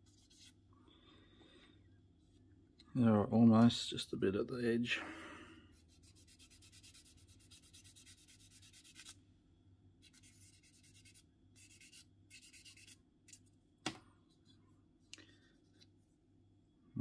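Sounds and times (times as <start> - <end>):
sanding stick on plastic: 6.0 - 9.2.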